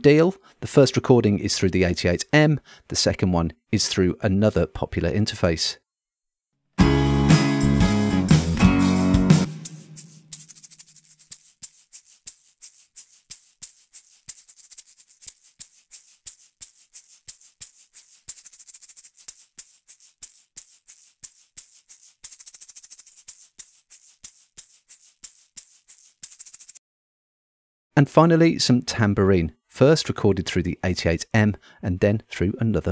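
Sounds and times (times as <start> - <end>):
shaker played in rhythm: 7.3 - 26.8.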